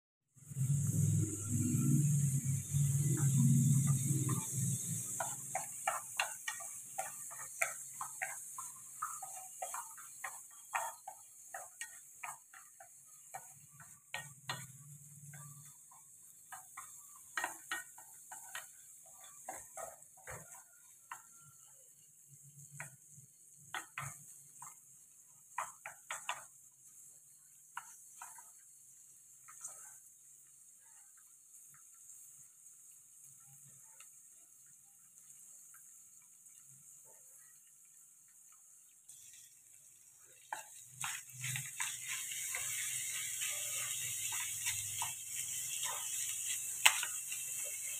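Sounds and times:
chopsticks scraping frying pan: 2.0s - 28.7s, 40.2s - 47.9s.

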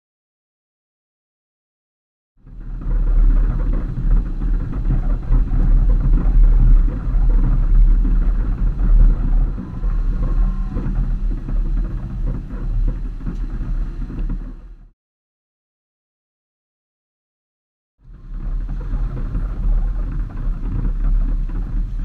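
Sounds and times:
off-road vehicle rumbling: 2.4s - 14.9s, 18.0s - 22.0s.

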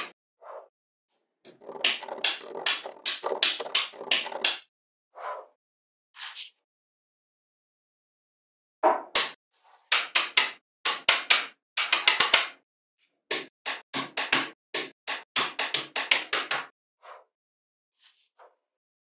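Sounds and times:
magnetic balls clacking together: 1.5s - 4.6s.

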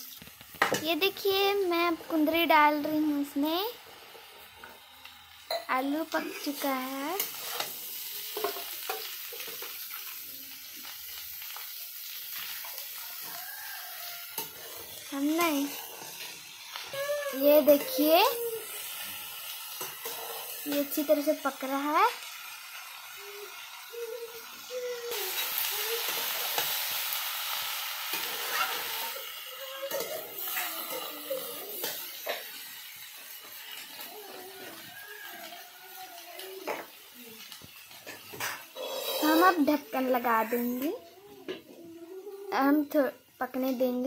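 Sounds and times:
vegetables sizzling in hot oil: 0.0s - 44.0s
spatula scraping a pan: 5.5s - 9.7s, 12.4s - 16.5s, 19.7s - 21.0s, 37.9s - 39.7s
metal spatula scraping pan: 7.2s - 9.1s, 38.1s - 39.6s.

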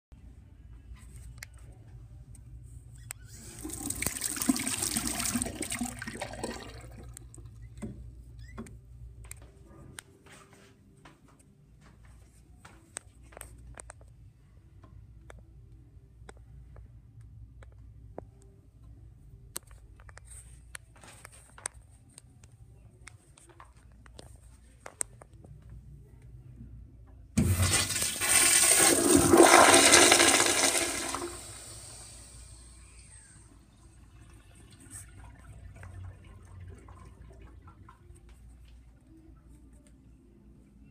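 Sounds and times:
toilet flush water rushing: 3.4s - 7.1s, 27.4s - 32.7s.

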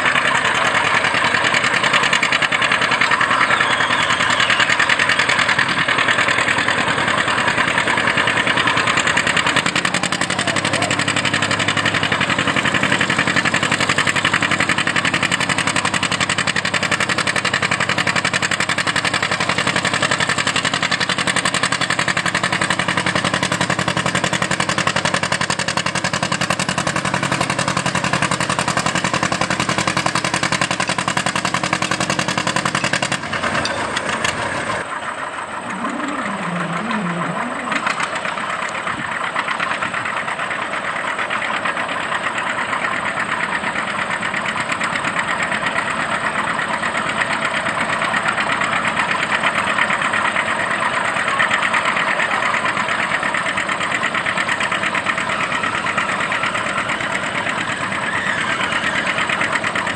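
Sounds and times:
engine running quietly: 0.0s - 59.9s
tractor engine under load: 0.0s - 59.9s
brief wavering tone: 35.6s - 38.2s.

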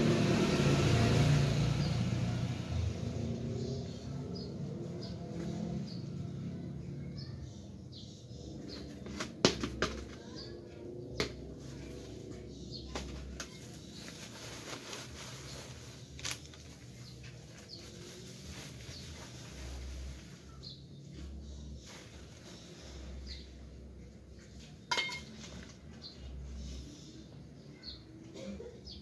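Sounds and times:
pots and plants being handled: 8.5s - 26.9s
plastic bags rustling: 13.0s - 20.8s.

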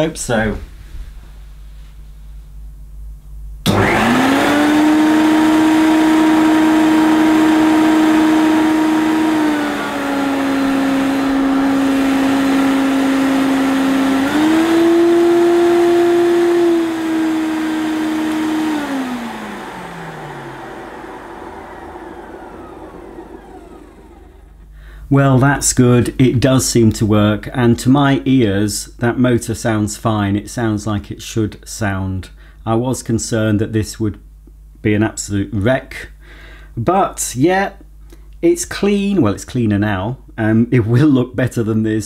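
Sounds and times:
vacuum cleaner motor whine: 3.7s - 24.8s.

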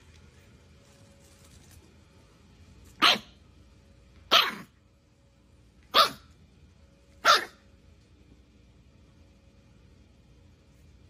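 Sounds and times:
puppy barking: 3.0s - 3.4s, 4.3s - 4.8s, 5.9s - 6.3s, 7.2s - 7.6s.

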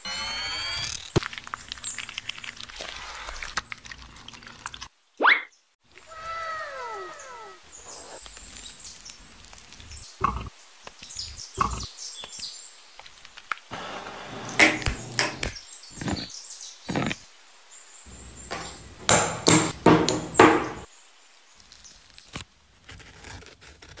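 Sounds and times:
spoon knocking and scraping containers: 13.8s - 16.3s, 18.1s - 20.9s.

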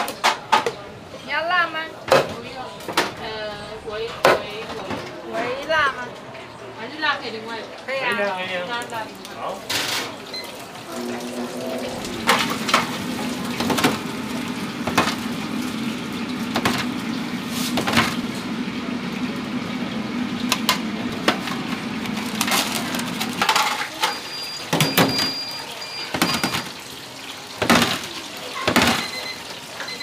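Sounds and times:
fried food and utensils rattling: 0.0s - 0.9s, 8.2s - 18.5s, 20.5s - 30.0s.

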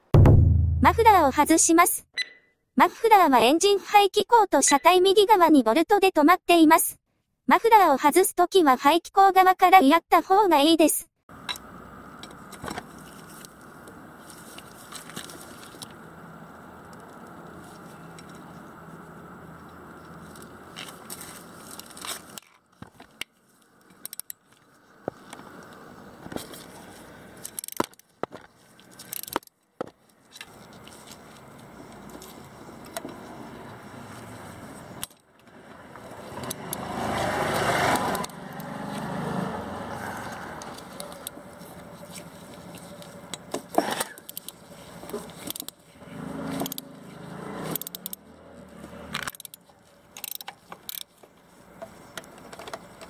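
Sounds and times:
socket ratchet clicking: 47.7s - 48.2s, 49.2s - 49.6s, 50.2s - 51.1s.

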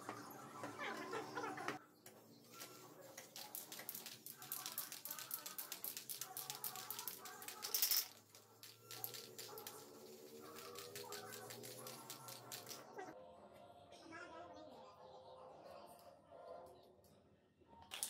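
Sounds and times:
spray paint can hissing: 3.1s - 8.0s, 8.6s - 12.8s
spray can rattling clicks: 3.2s - 12.8s.

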